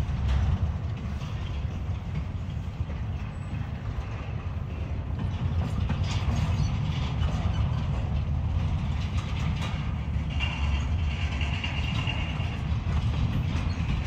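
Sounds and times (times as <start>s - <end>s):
train wheels rumbling on rail: 0.0s - 14.0s
sharp clicks and rattles: 5.2s - 14.0s.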